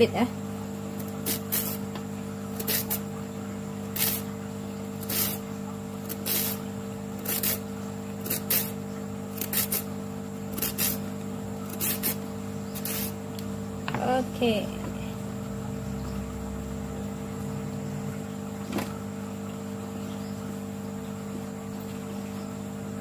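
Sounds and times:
steady low hum: 0.0s - 23.0s
peeler scraping carrot: 1.0s - 1.9s, 2.5s - 3.0s, 3.9s - 4.3s, 5.0s - 13.2s.

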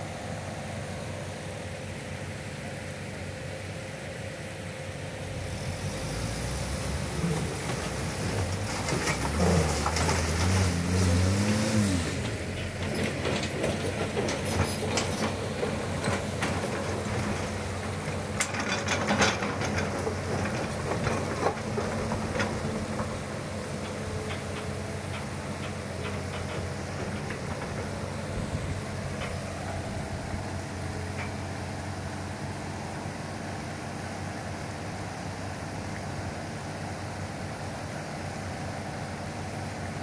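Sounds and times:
truck diesel engine: 0.0s - 40.0s
excavator engine revving: 5.2s - 32.6s
rocks knocking and clattering: 12.2s - 29.8s.

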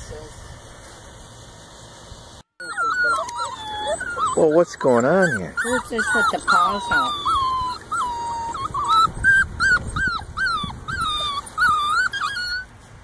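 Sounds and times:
puppies whimpering: 2.6s - 12.7s.

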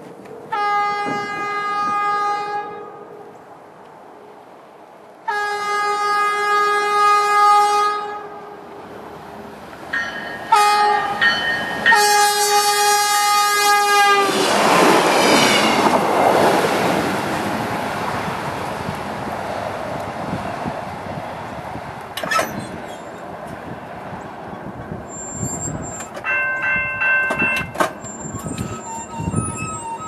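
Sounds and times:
train engine noise: 0.0s - 30.0s
train horn blasts: 0.5s - 3.3s, 5.2s - 8.6s, 10.5s - 11.3s, 11.9s - 14.4s
train wheels rushing on rails: 8.8s - 30.0s.

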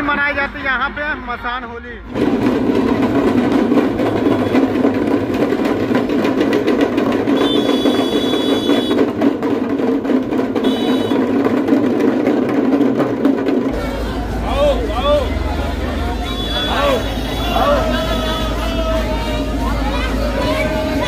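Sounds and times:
drum roll: 2.1s - 21.0s.

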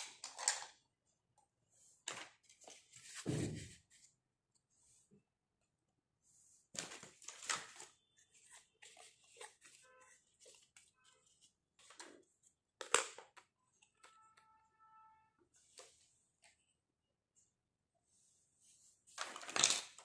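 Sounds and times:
plastic toys clicking and rattling: 0.0s - 0.8s, 12.8s - 13.5s, 19.2s - 20.0s.

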